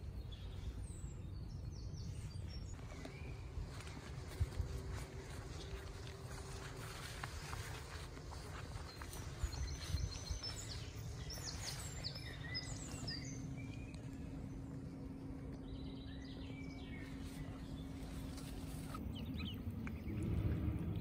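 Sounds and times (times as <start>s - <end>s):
low outdoor rumble: 0.0s - 21.0s
songbirds chirping and trilling: 0.0s - 21.0s
steady low hum: 0.0s - 21.0s.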